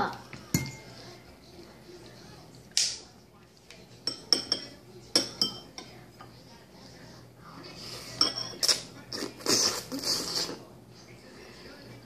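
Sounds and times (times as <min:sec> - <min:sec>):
eating noises: 0:07.8 - 0:10.8
fork clinking on plate: 0:08.1 - 0:08.8.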